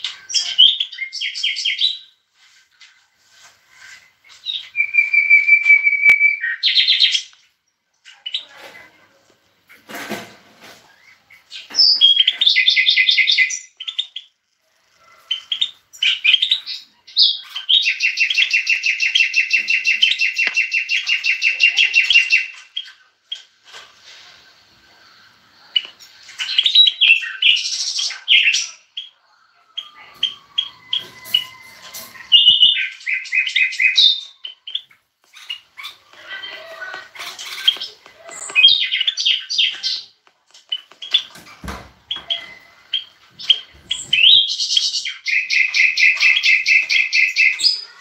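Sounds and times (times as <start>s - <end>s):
finch chirps: 10.9s - 23.5s, 25.0s - 48.0s
finches trilling and twittering: 25.0s - 41.4s.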